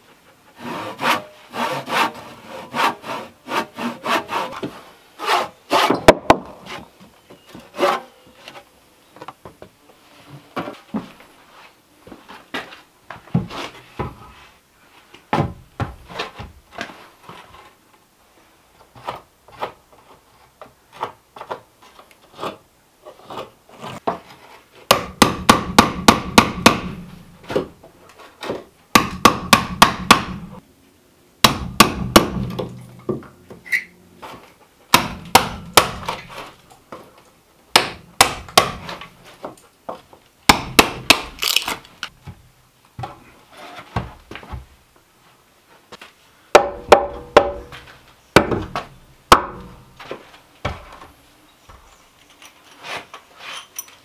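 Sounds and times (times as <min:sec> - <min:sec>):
hammer blows on wooden door frame: 0:28.9 - 0:30.5, 0:46.6 - 0:47.8.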